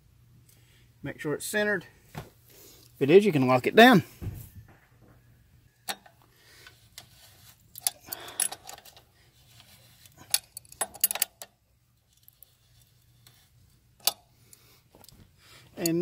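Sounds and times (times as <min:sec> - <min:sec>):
wrench clinking on axle nut: 0:07.8 - 0:09.0, 0:10.2 - 0:11.5, 0:15.8 - 0:16.0.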